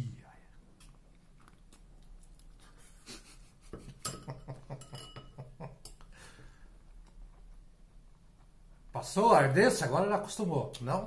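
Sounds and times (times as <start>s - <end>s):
cutlery clinking against a bowl: 3.8s - 6.1s.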